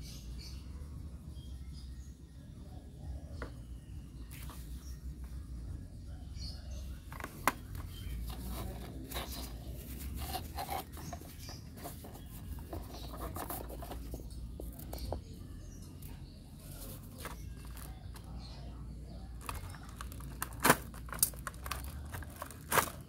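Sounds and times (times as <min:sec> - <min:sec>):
rustling of plastic packaging: 0:16.6 - 0:18.3, 0:19.4 - 0:23.0.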